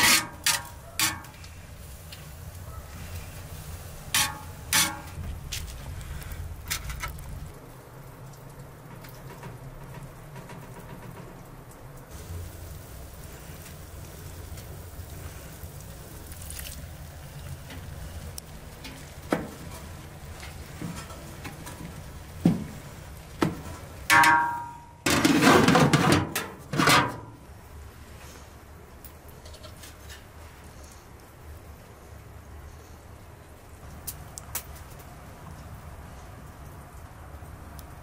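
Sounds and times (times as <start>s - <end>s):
spatula knocking on metal pot: 23.4s - 24.8s
metal lid ringing and clattering: 24.1s - 27.3s.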